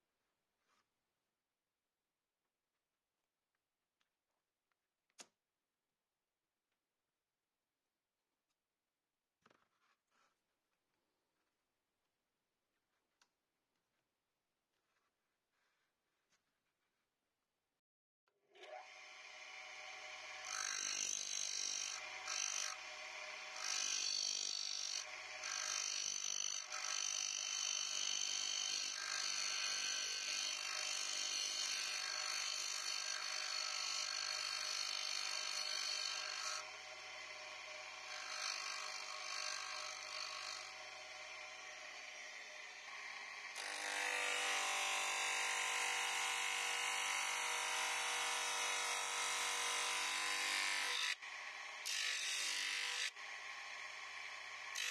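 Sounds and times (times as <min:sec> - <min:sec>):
bench grinder motor hum: 0:18.6 - 0:54.9
cutting disc sawing wood: 0:18.7 - 0:54.9.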